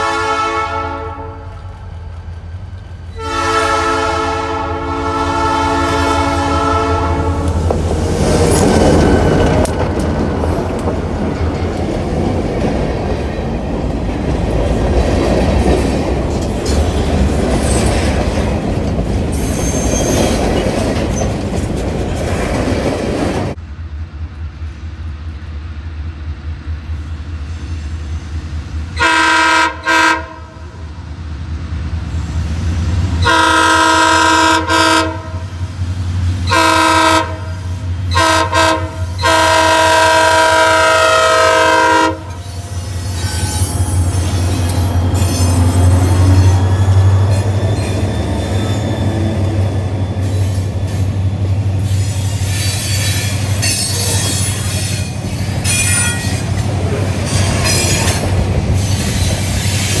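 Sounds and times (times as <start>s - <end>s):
locomotive air horn blasts: 0.0s - 1.7s, 3.1s - 7.6s, 29.0s - 30.7s, 33.2s - 35.5s, 36.4s - 43.6s
heavy locomotive engine rumble: 0.0s - 60.0s
train wheels clattering and squealing: 7.6s - 23.6s, 42.3s - 60.0s.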